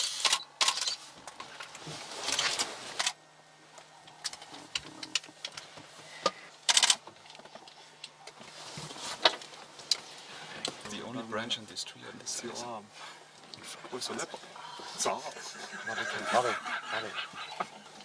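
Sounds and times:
camera handling clicks and rustling: 6.7 - 8.2.

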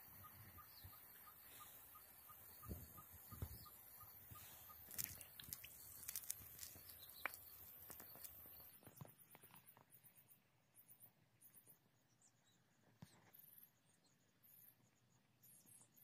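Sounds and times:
faint outdoor ambience: 0.0 - 16.0
soft regular ticking: 3.6 - 11.8.

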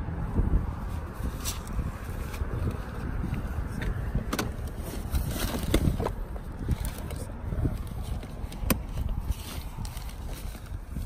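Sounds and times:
car seat handle clicks and knocks: 3.8 - 4.8, 8.5 - 8.9.

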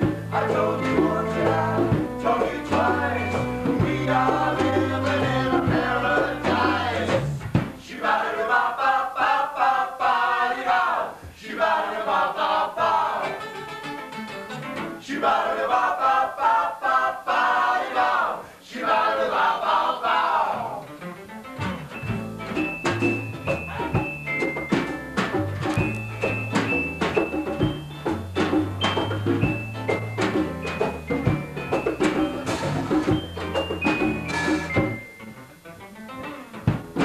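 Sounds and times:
higher melody over guitars: 0.0 - 7.4, 21.0 - 37.0
bass line: 0.0 - 7.8, 21.6 - 35.1
small band playing live: 0.0 - 7.9, 12.8 - 15.1, 20.7 - 37.0.

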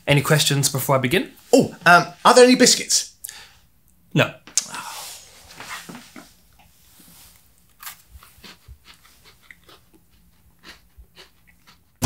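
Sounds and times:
biscuit crunching and chewing: 7.4 - 12.0.

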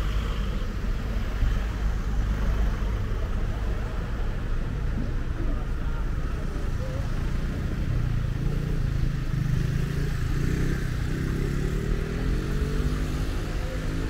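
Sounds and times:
vehicle engine accelerating: 8.2 - 14.0.

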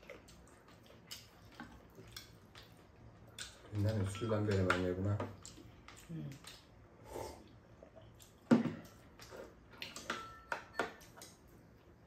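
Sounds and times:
spoons clinking on ceramic bowls: 4.0 - 4.9, 9.9 - 11.0.

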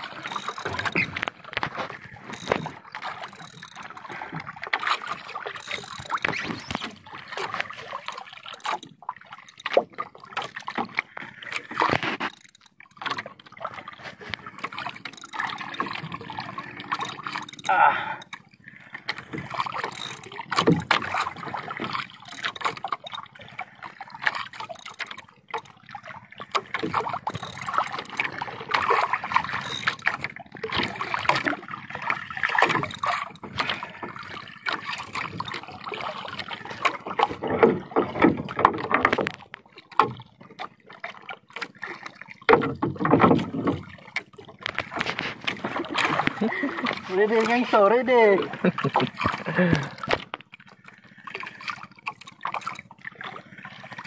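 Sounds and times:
water sloshing against wooden boat: 0.0 - 54.0.

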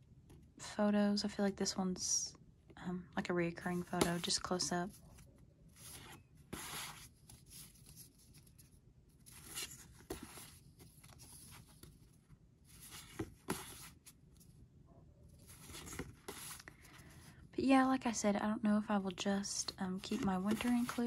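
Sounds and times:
postcards sliding and swishing: 3.7 - 12.0, 12.7 - 14.2, 15.4 - 17.0, 20.0 - 21.0.

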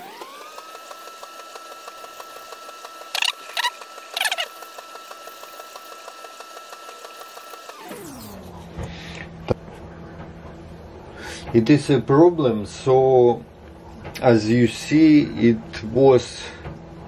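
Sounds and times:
razor honing strokes ticking: 0.0 - 7.7.

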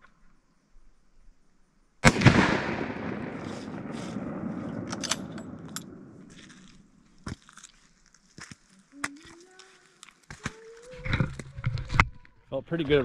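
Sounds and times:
rifle shot with rolling echo: 2.0 - 6.3.

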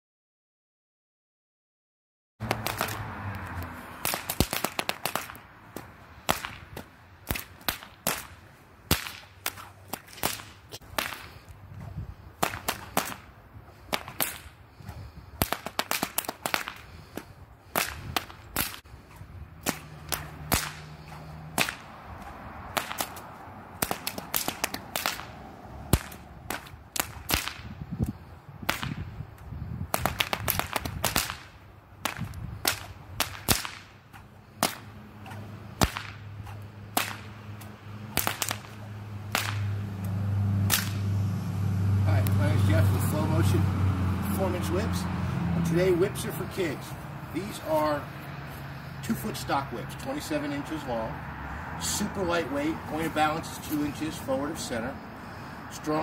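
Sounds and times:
stock whips cracking: 2.4 - 3.1, 4.0 - 41.2.

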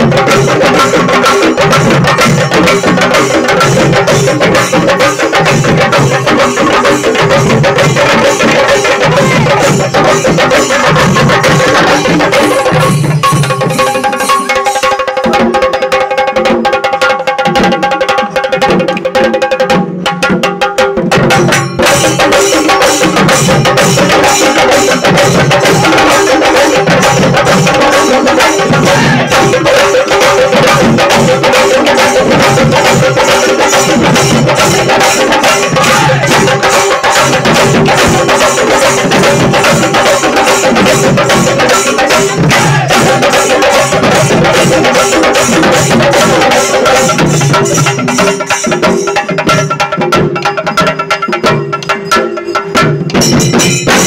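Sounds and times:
cylindrical drums beaten with sticks: 0.0 - 54.0
heavy low drum beat: 23.0 - 49.7.

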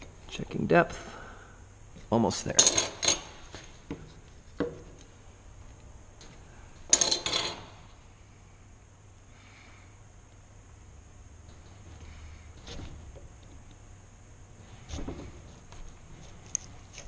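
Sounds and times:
metal tool clattering on bench: 6.9 - 7.6.

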